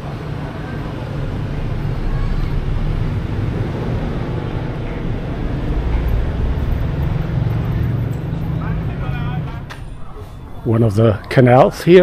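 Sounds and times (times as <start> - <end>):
low outdoor rumbling: 0.0 - 12.0.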